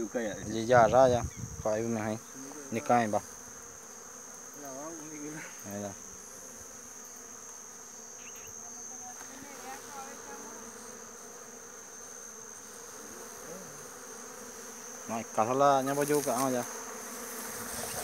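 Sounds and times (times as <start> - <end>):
flies buzzing: 0.0 - 18.0
high insect whine: 0.0 - 18.0.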